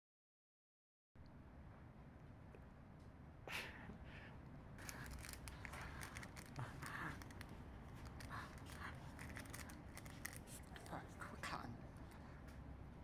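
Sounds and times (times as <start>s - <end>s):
plastic bag crinkling: 4.8s - 11.0s.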